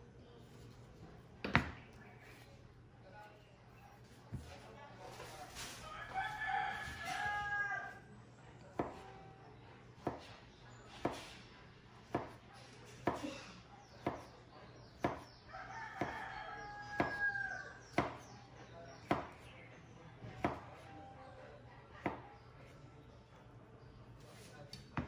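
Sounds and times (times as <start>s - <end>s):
rooster crowing: 5.9s - 8.0s, 15.5s - 17.7s.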